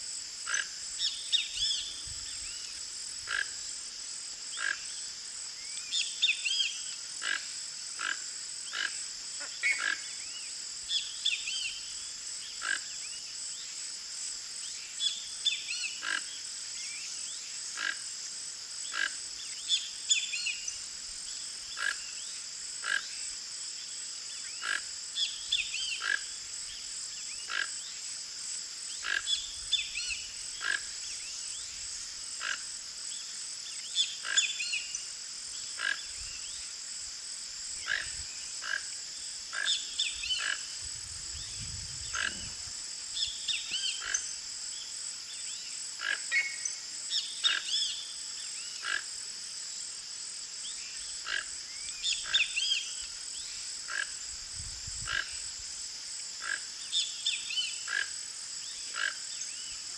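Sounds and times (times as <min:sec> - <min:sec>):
high-pitched hiss: 0:00.0 - 0:59.9.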